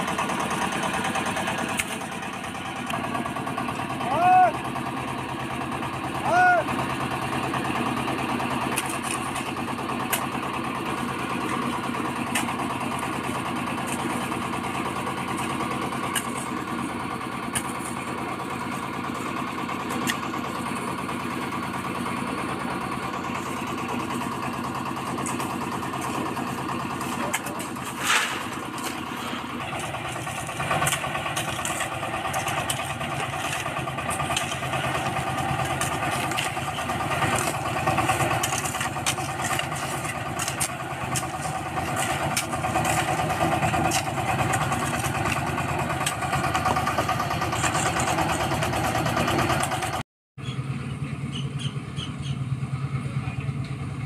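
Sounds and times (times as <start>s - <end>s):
engine running: 0.0s - 54.0s
spades digging into soil: 0.5s - 3.0s, 7.9s - 21.4s, 23.0s - 48.6s.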